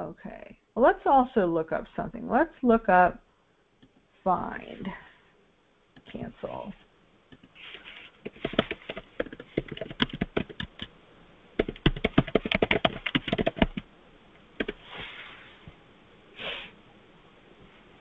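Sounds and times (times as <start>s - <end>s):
computer keyboard typing: 8.2s - 10.9s, 11.6s - 13.8s, 14.6s - 14.8s
short hisses: 16.4s - 16.8s.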